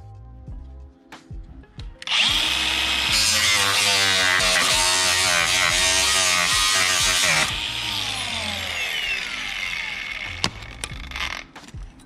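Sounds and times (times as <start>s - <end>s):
angle grinder cutting metal: 2.0s - 11.6s.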